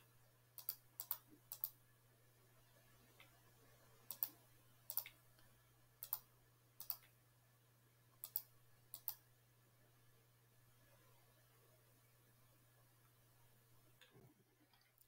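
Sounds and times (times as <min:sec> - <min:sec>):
faint electrical hum: 0:00.0 - 0:15.0
computer mouse clicking: 0:00.6 - 0:01.8, 0:04.1 - 0:07.2, 0:08.2 - 0:09.2.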